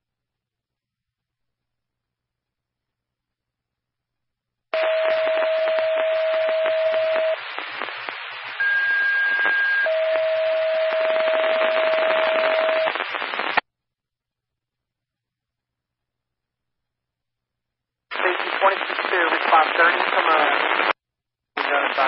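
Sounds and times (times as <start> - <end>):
radio static hiss: 4.8 - 9.9, 10.8 - 13.6, 18.1 - 21.0, 21.6 - 22.0
radio tone: 4.8 - 13.6, 18.1 - 21.0, 21.6 - 22.0.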